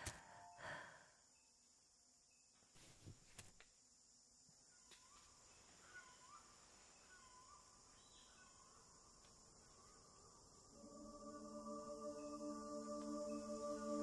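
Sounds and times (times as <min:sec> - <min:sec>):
insect hiss: 0:00.0 - 0:14.0
soft bird chirps: 0:04.6 - 0:10.7.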